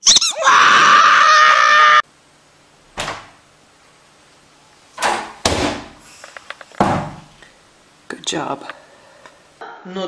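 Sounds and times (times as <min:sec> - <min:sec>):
squeaky toy squeaking: 0:00.0 - 0:00.4
dull knock: 0:06.8 - 0:07.3.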